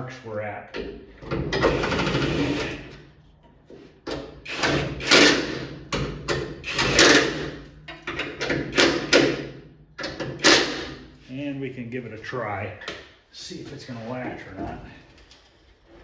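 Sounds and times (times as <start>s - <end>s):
cordless power driver bursts: 4.5s - 5.5s, 6.6s - 7.4s.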